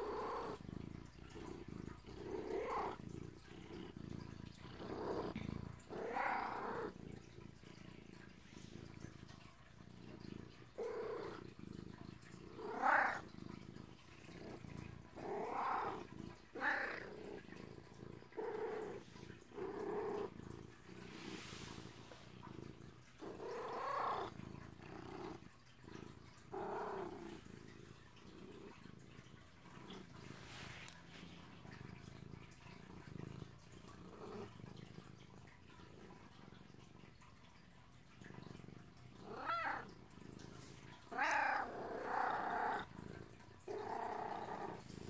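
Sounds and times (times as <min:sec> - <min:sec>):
cat purring: 0:00.0 - 0:45.0.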